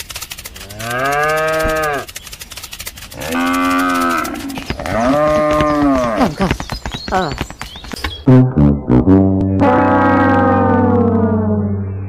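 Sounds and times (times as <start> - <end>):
cow mooing: 0.6 - 2.1, 3.2 - 6.2, 9.6 - 11.1.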